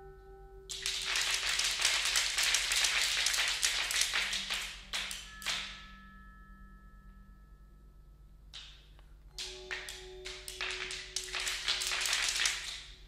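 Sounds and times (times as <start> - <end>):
faint high steady tones: 4.3 - 13.0.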